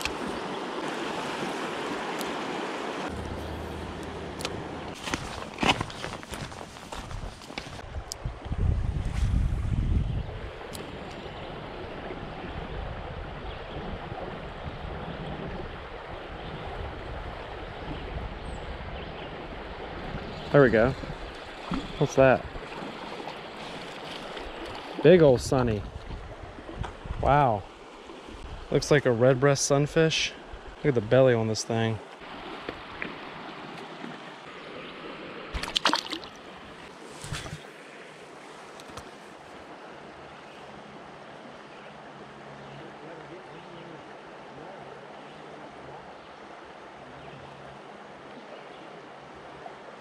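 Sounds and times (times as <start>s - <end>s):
river running over rocks: 0.0s - 7.8s, 32.2s - 48.3s
wind rumble on microphone: 5.8s - 22.7s, 25.3s - 27.4s
fish splashing: 35.5s - 37.7s.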